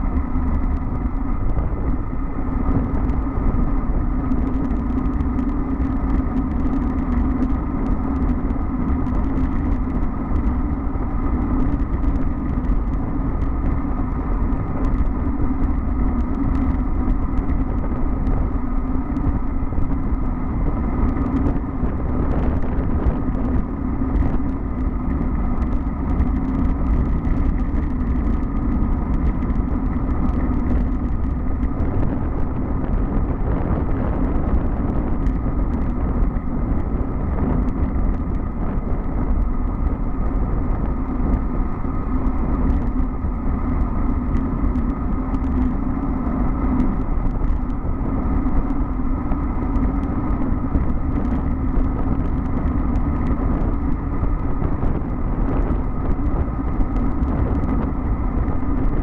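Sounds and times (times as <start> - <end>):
bicycle clicks and rattles: 0.0 - 59.0
tyre hum on asphalt: 0.0 - 59.0
wind rush on microphone: 0.0 - 59.0.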